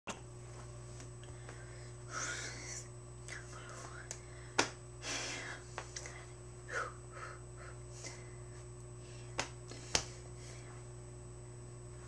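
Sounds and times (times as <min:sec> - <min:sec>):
low electrical hum: 0:00.1 - 0:12.0.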